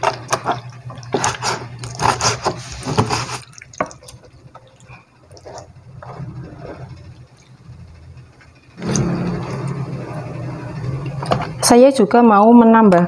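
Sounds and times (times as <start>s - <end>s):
meat scraped off board: 1.2s - 3.4s.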